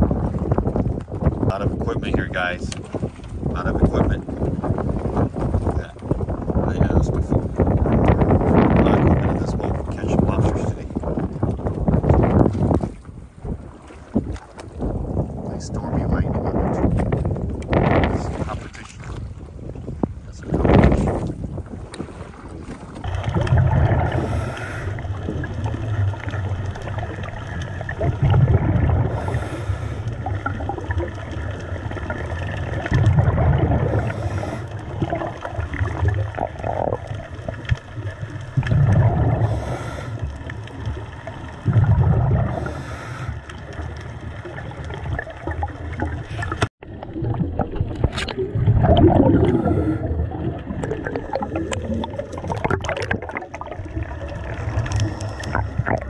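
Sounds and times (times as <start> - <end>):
exhaled bubbles gushing: 0.0 - 56.0
regulator inhale hiss: 24.2 - 25.0, 29.2 - 30.1, 39.5 - 40.2, 42.6 - 43.4.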